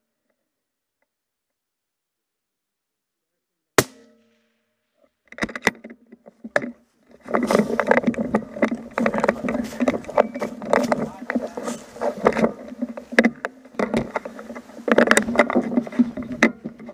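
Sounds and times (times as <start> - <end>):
suppressed rifle shot: 3.8 - 4.5
rifle handling clatter and rustle: 5.2 - 16.9.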